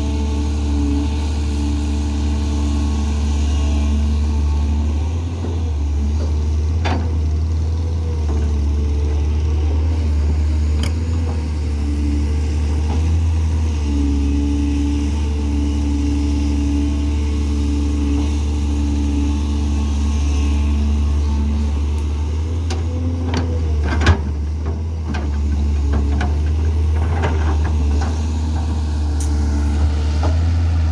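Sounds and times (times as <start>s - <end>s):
excavator diesel engine running: 0.0s - 30.9s.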